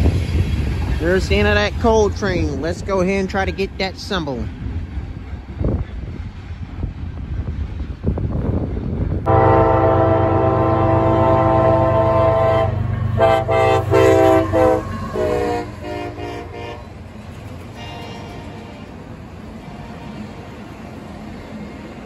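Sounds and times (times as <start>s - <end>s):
locomotive air horn blasts: 9.3s - 16.9s.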